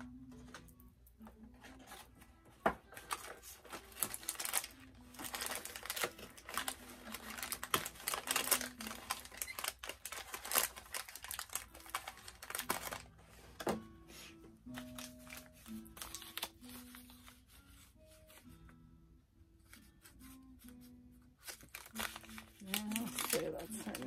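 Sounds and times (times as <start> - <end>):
plastic packaging clicks and rustles: 1.6 - 13.8, 14.8 - 17.0, 21.4 - 24.0.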